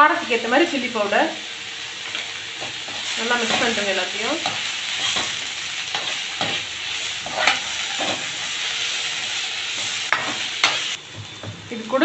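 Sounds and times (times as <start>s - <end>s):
onions sizzling in oil: 0.0s - 12.0s
spatula scraping and knocking pan: 4.4s - 8.4s, 9.2s - 11.6s.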